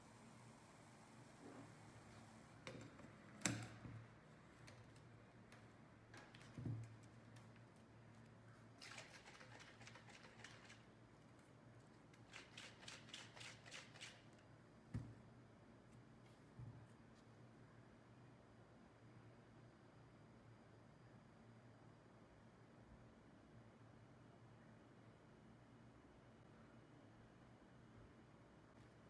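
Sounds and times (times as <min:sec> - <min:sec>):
shaker bottle being shaken: 0:08.8 - 0:10.9, 0:12.2 - 0:14.3.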